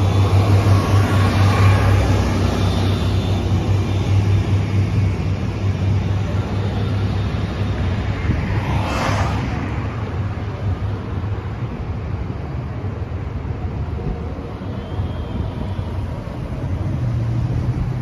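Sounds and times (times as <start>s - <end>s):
bus engine rumble: 0.0s - 18.0s
cars driving through: 0.0s - 18.0s
car swishing by: 8.4s - 9.8s.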